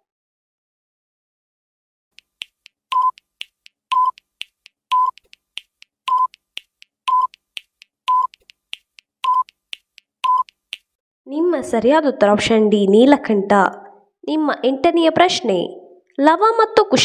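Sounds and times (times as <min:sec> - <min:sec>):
quick ticks: 0:02.2 - 0:11.0
short timer beeps: 0:02.9 - 0:03.3, 0:03.9 - 0:04.3, 0:04.9 - 0:05.3, 0:06.1 - 0:06.4, 0:07.1 - 0:07.4, 0:08.1 - 0:08.4, 0:09.2 - 0:09.6, 0:10.2 - 0:10.6.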